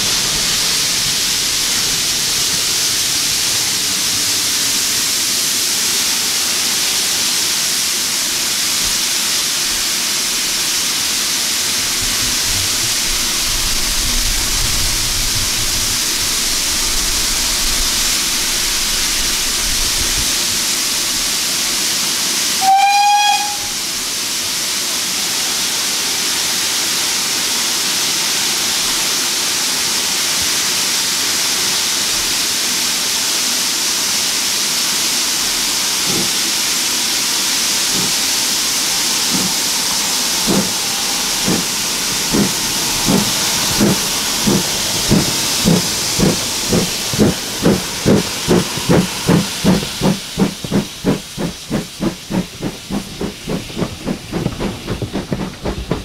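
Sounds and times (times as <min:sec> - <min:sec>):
steady steam hiss: 0:00.0 - 0:56.0
steam locomotive whistle: 0:22.5 - 0:23.9.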